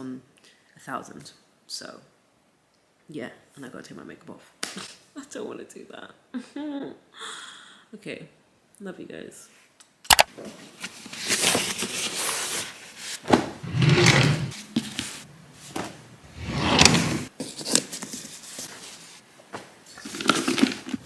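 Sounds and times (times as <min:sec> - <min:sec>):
fabric rustling and swishing: 0:10.7 - 0:17.4.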